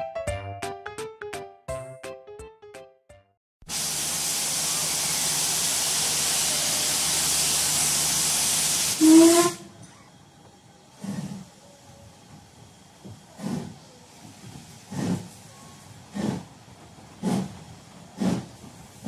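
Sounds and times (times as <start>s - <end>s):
soft puff of steam: 3.7s - 9.7s, 10.9s - 12.0s, 13.0s - 16.5s, 17.2s - 19.0s
steam hissing: 3.7s - 9.8s, 10.7s - 19.0s
steam locomotive whistle blast: 3.7s - 9.8s.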